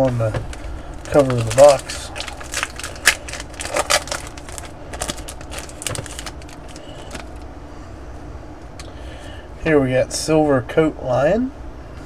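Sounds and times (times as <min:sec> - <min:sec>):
wrapper crinkling and rustling: 0:00.0 - 0:07.4.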